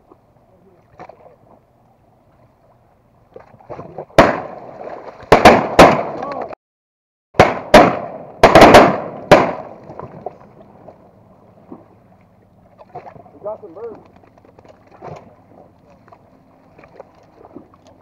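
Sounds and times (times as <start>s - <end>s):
shotguns firing with echo: 4.2s - 4.6s, 5.3s - 6.2s, 7.4s - 9.8s.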